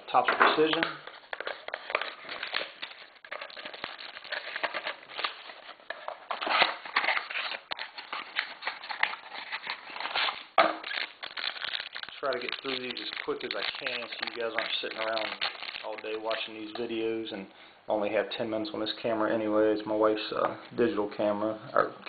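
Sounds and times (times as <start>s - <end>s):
foil wrapper crinkling and tearing: 0.6s - 16.9s.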